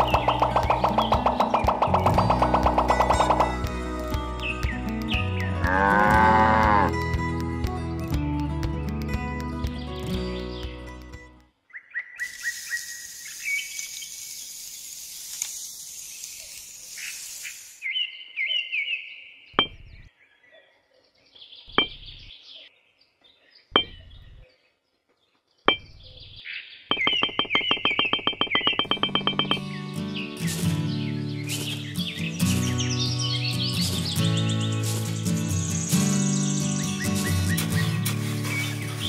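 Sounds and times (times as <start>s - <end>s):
small birds chirping: 0.0s - 6.9s, 9.4s - 39.0s
stick scratching through sand: 31.4s - 32.9s, 34.7s - 35.5s, 37.0s - 39.0s.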